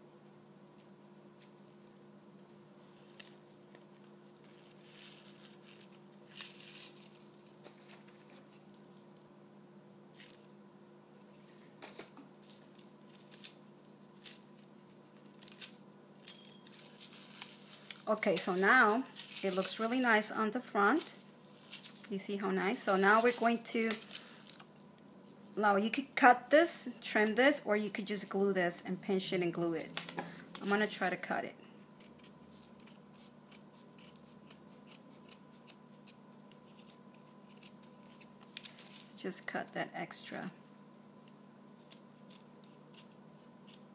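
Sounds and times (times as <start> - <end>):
faint steady hum: 0.0 - 43.9
paper rustling and crinkling: 2.8 - 9.2, 11.4 - 20.0, 21.0 - 22.1, 22.9 - 24.7.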